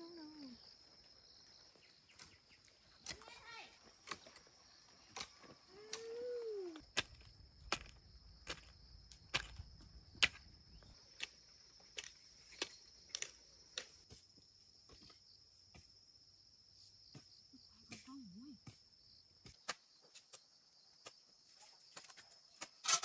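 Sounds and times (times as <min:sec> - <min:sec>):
crickets chirring: 0:00.0 - 0:23.0.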